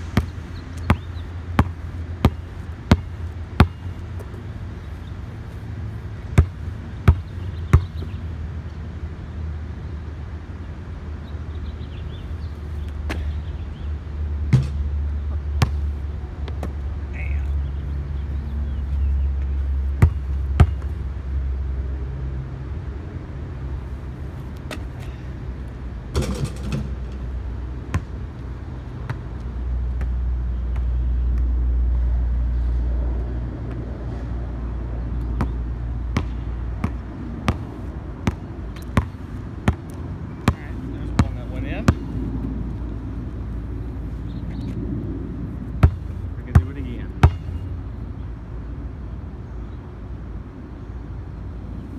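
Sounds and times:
steady low rumble: 0.0 - 8.7, 13.3 - 49.4
basketball bouncing on concrete: 0.1 - 4.4, 6.3 - 8.1, 14.5 - 14.9, 15.6 - 16.8, 20.0 - 21.0, 27.9 - 28.2, 35.3 - 42.2, 45.8 - 47.6.

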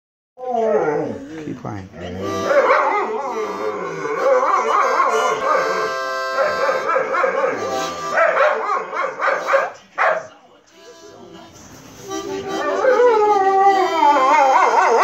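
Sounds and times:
dog howling and whining: 0.4 - 1.3, 2.1 - 9.3, 12.5 - 15.0
harmonica playing chords: 2.2 - 8.4, 10.7 - 15.0.

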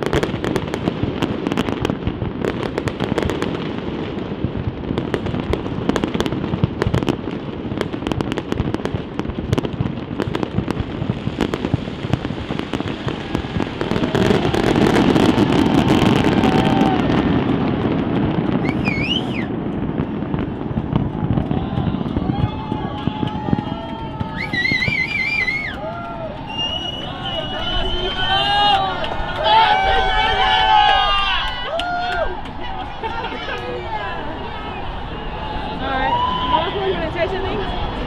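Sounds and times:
fireworks bursting and crackling: 0.0 - 38.0
rising and falling whistle: 18.6 - 19.5, 24.3 - 25.8, 26.4 - 28.5.

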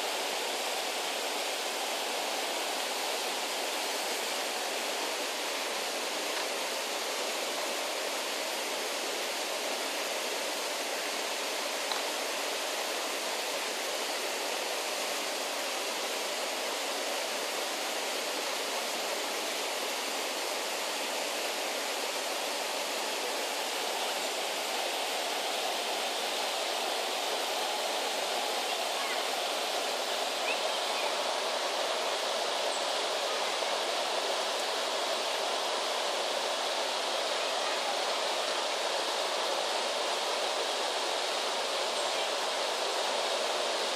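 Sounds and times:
flowing river water: 0.0 - 43.9.

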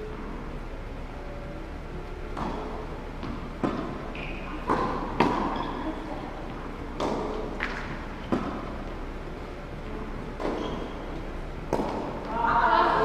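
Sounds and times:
tennis ball knocks echoing in hall: 2.3 - 6.1, 6.8 - 9.0, 10.4 - 12.4.

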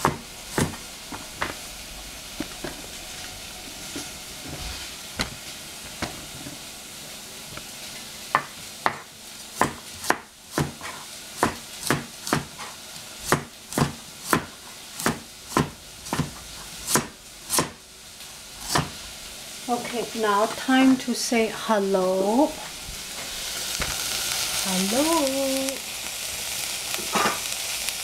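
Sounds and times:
faint sizzle of frying onion: 0.0 - 28.0
knife chopping on plastic board: 9.6 - 12.6, 13.3 - 17.8.

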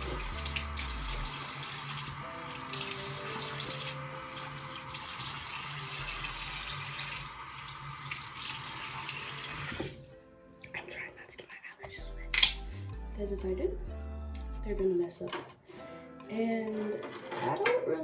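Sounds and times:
face being washed under water: 0.0 - 10.0
sink tap running: 0.0 - 10.0.

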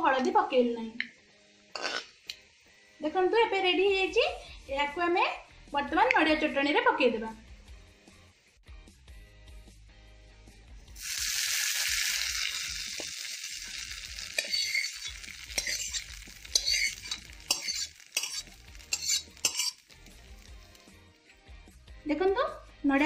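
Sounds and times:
hot oil sizzling: 10.9 - 21.3
metal spatula scraping: 14.1 - 20.9.

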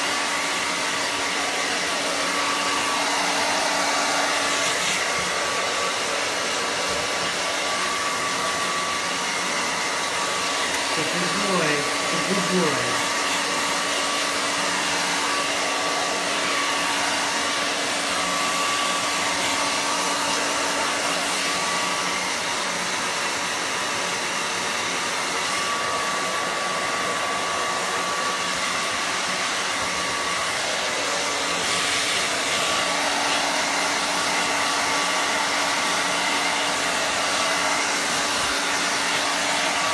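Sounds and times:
hair dryer running: 0.0 - 39.9.

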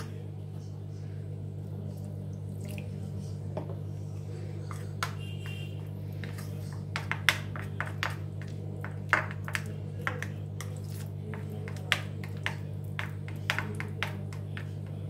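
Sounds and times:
spoon stirring batter: 1.4 - 15.0
spoon tapping plastic bowl: 4.7 - 5.6, 6.2 - 10.7, 11.3 - 15.0.

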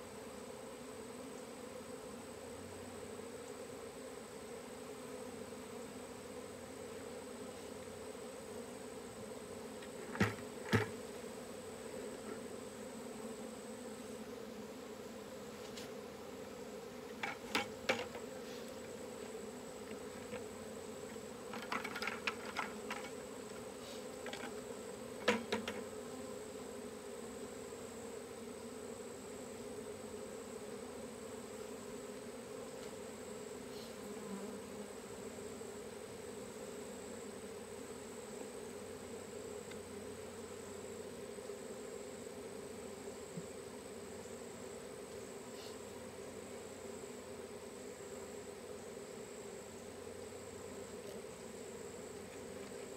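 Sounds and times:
bee swarm buzzing: 0.0 - 52.9
short knocks and rustles: 9.8 - 11.0.

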